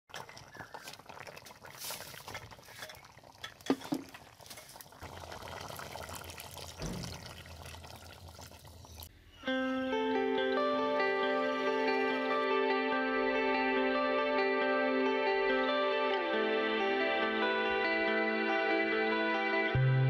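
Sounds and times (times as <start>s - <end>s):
curry bubbling in a pot: 0.1s - 9.1s.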